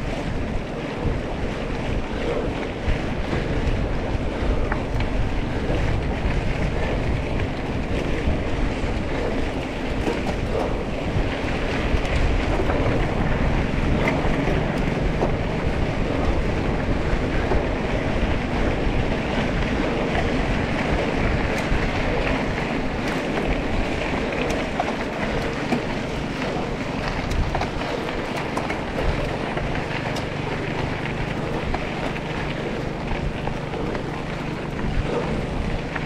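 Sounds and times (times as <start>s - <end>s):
off-road vehicle engine: 0.0s - 36.0s
wind buffeting microphone: 0.0s - 36.0s.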